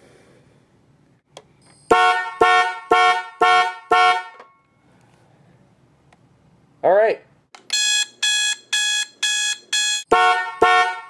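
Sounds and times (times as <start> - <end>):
car horn honking: 1.9 - 4.6, 7.7 - 11.0.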